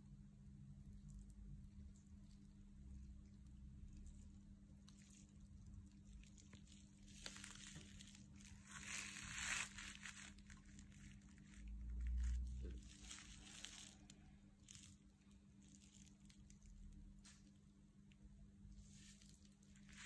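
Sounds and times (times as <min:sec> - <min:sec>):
steady low hum: 0:00.0 - 0:20.0
cricket bat rustling and scraping: 0:04.9 - 0:16.6, 0:18.7 - 0:20.0.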